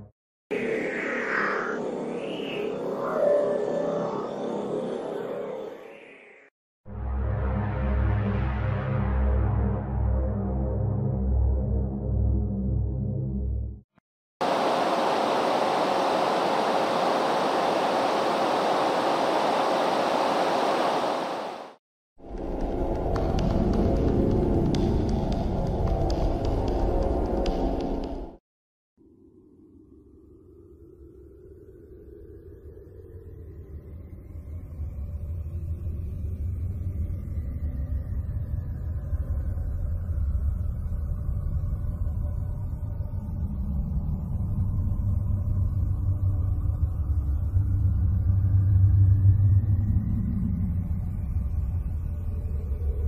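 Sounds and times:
synthetic rushing noise: 0:00.5 - 0:04.6, 0:14.4 - 0:21.8
low rumbling ambient drone: 0:29.4 - 0:53.0.

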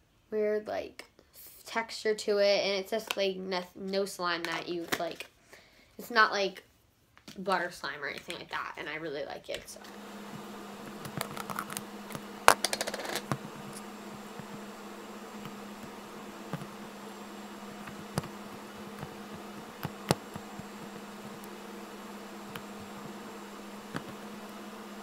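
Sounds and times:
steady low hum: 0:09.8 - 0:25.0.

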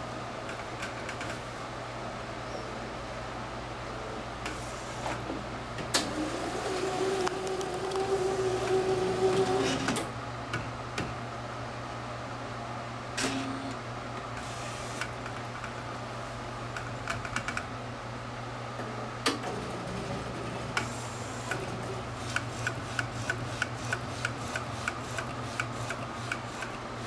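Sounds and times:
printer motor hum: 0:03.0 - 0:11.2, 0:13.2 - 0:17.0, 0:17.7 - 0:27.0.

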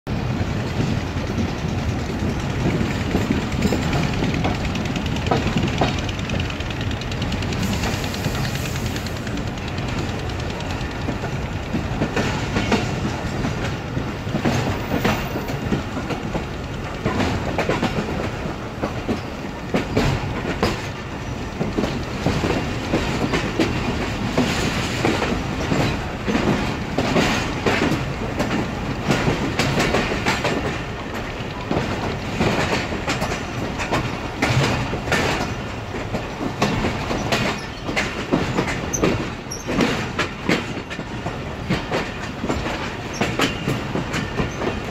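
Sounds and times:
train running rumble: 0:00.1 - 0:44.9
train wheels clacking over rail joints: 0:00.1 - 0:44.9.

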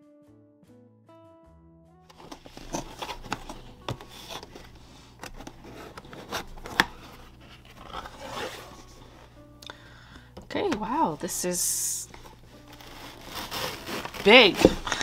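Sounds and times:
hands tapping and scraping cardboard: 0:02.1 - 0:07.0, 0:12.2 - 0:15.0
cardboard lid rustling: 0:02.1 - 0:09.4, 0:12.0 - 0:15.0.

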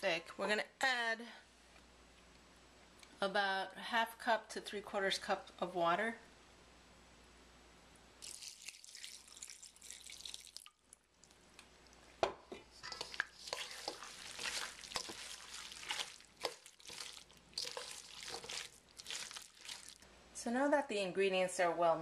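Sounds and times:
spoon stirring wet sauce: 0:08.2 - 0:20.0.

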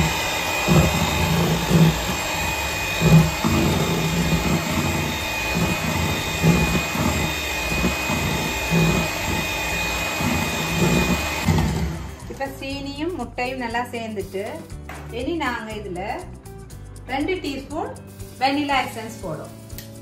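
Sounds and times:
electric hand mixer whining: 0:00.0 - 0:12.4.

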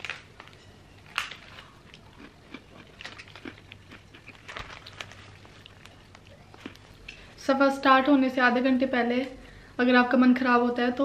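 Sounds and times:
biscuit packet rustling: 0:00.0 - 0:02.0, 0:02.8 - 0:07.0
biscuit crunching: 0:00.0 - 0:07.3.

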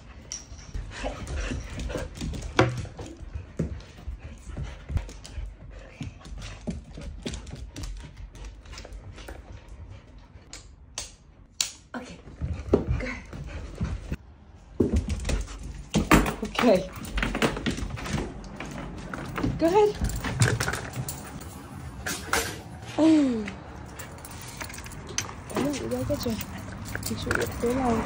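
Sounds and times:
dog panting and whimpering: 0:00.7 - 0:10.5, 0:22.9 - 0:28.0.

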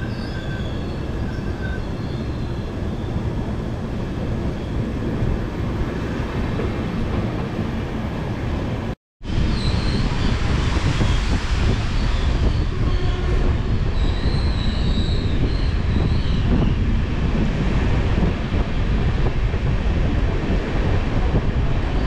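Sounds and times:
high-pitched wheel squeal: 0:00.0 - 0:03.2, 0:11.9 - 0:16.8
train wheels rumbling on rails: 0:00.0 - 0:22.0.

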